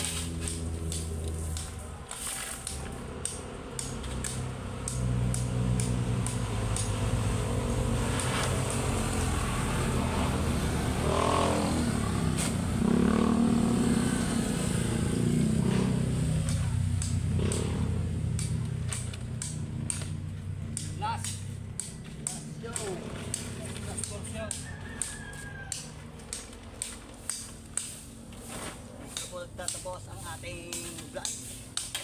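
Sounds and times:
vehicle engine revving: 0:00.0 - 0:24.7.

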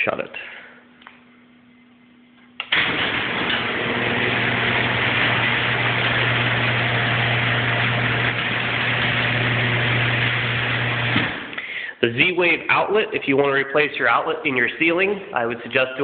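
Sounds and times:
garage door opener motor hum: 0:01.5 - 0:11.6
garage door travelling down: 0:02.7 - 0:11.5.

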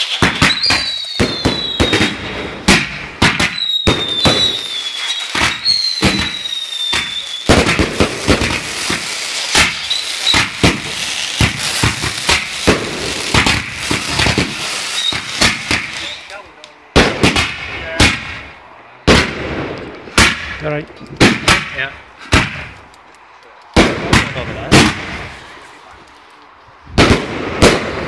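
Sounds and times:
whistling fireworks: 0:00.0 - 0:16.4, 0:26.9 - 0:28.0
fireworks bangs and crackling: 0:00.0 - 0:22.9, 0:23.7 - 0:28.0.

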